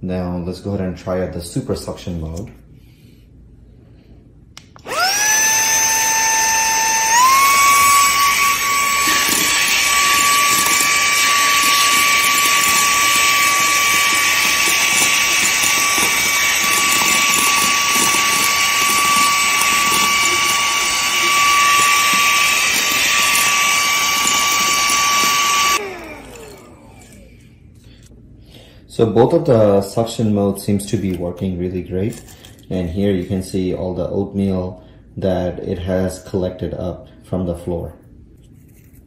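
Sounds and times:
handheld vacuum whining: 4.8 - 27.5.

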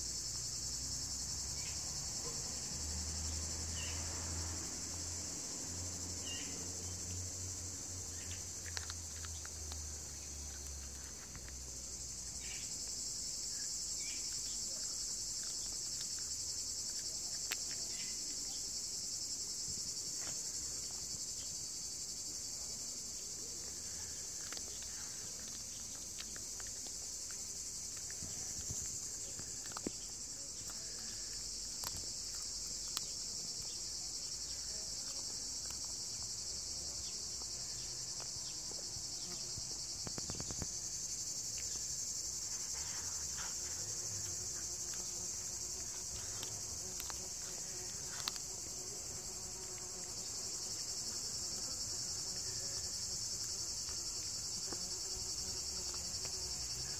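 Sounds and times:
insects chirring: 0.0 - 56.9
cat crunching bone: 8.4 - 11.7, 24.2 - 33.4, 42.9 - 50.2.

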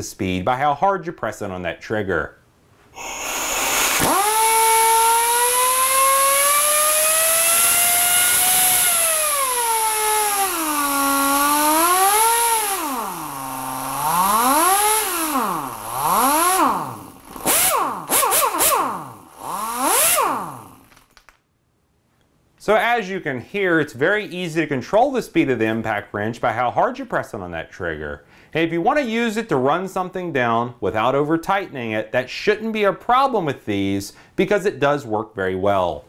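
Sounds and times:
air impact wrench whining: 3.0 - 21.0.

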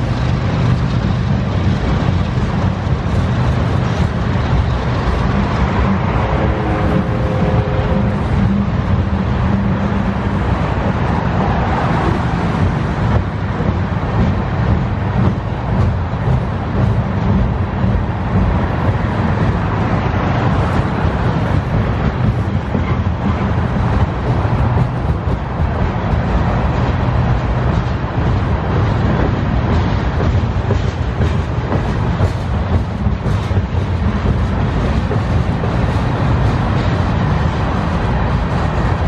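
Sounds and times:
freight train wheels rumbling: 0.0 - 39.0
train wheel clatter: 0.0 - 39.0.

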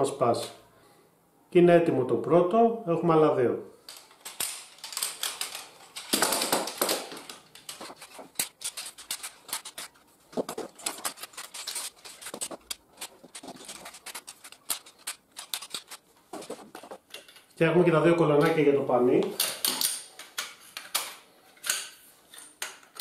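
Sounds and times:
metal tubes clicking and rattling: 3.8 - 17.6, 19.4 - 23.0.

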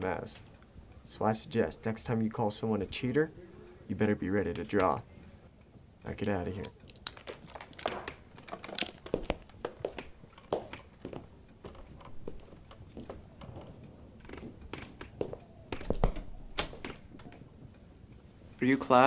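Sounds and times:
footsteps and knocks: 7.2 - 17.8.

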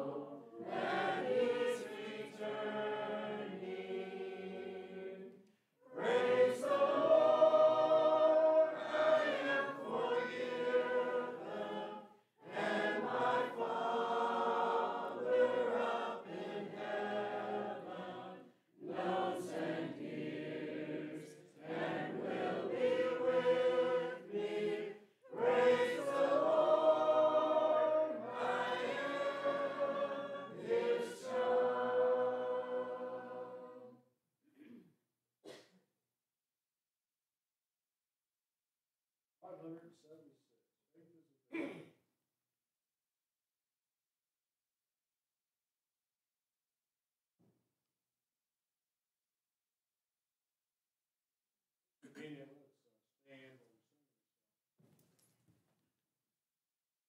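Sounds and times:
congregation singing a hymn: 0.0 - 34.0.

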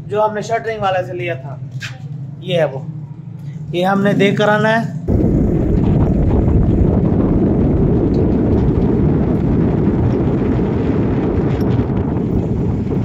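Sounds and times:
wind buffeting microphone: 5.1 - 13.0.

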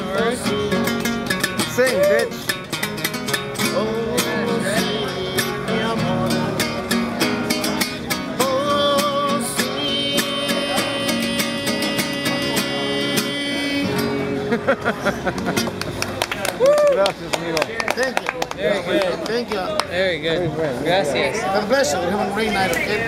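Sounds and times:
man singing: 0.0 - 2.5, 3.6 - 14.4
acoustic guitar strumming: 0.0 - 16.2.

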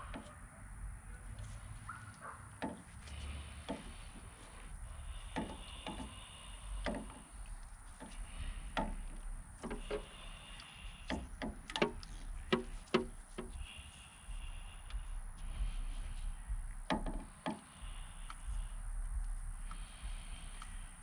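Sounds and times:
wire and plastic clicks: 8.8 - 13.6.

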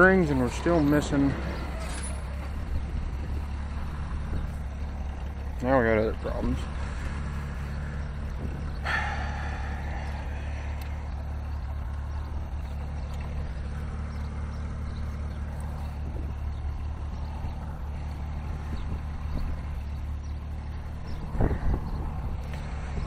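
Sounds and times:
tractor engine idling: 0.0 - 23.0
metallic clank: 1.6 - 2.6.

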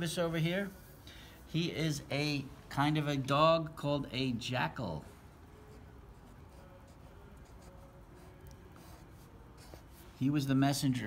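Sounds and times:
felt-tip marker writing on paper: 5.7 - 10.2.

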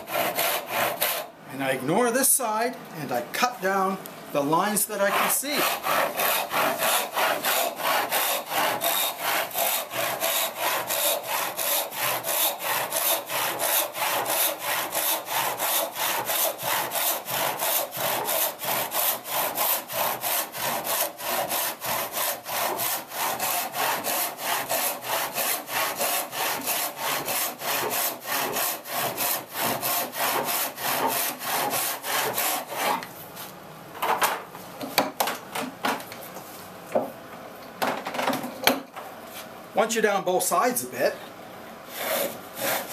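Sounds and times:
hand saw ripping a board: 5.2 - 33.0, 41.9 - 42.9.

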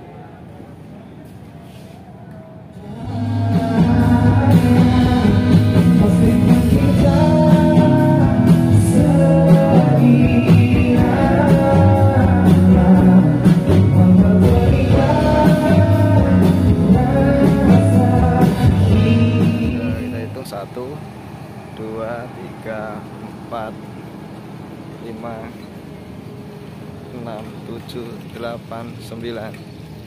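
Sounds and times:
person singing: 2.8 - 20.3
live rock band: 3.0 - 20.3.

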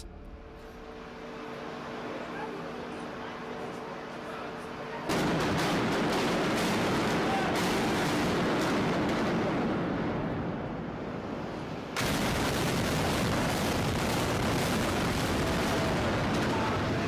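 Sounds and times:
rumble of building collapsing: 12.0 - 17.0.

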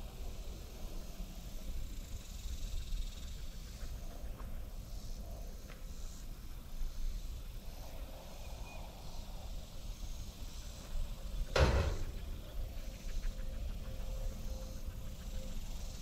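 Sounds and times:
metal feeder clank: 11.6 - 12.2.

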